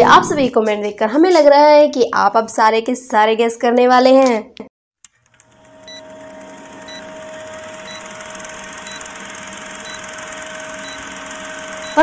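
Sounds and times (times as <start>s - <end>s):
film projector whirring: 5.1s - 12.0s.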